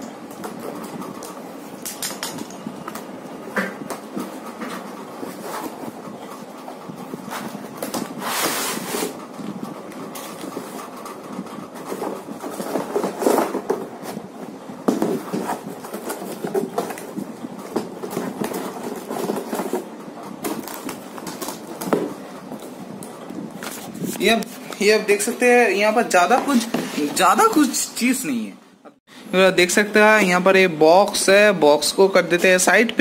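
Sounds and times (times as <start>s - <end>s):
cardboard scraping and rustling: 3.6s - 6.0s, 7.0s - 9.2s, 10.1s - 22.8s, 23.5s - 24.6s, 26.4s - 27.7s.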